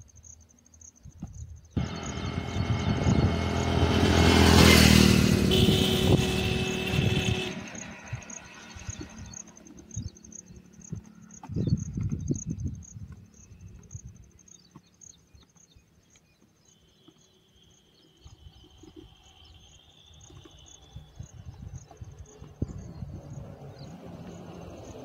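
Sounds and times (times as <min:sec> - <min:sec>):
insects chirping: 0:00.0 - 0:25.0
low rumble: 0:01.8 - 0:07.5.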